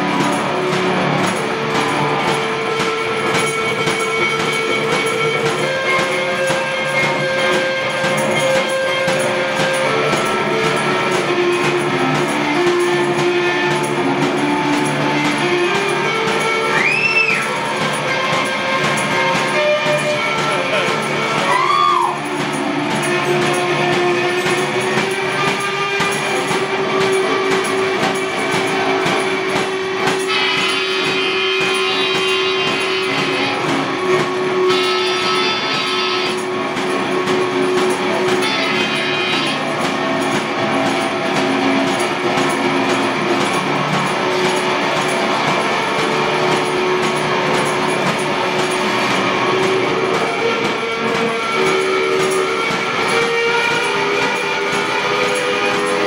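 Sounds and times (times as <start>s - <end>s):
blues guitar: 0.0s - 56.0s
harmonica chords: 0.0s - 56.0s
tambourine keeping time: 0.0s - 56.0s.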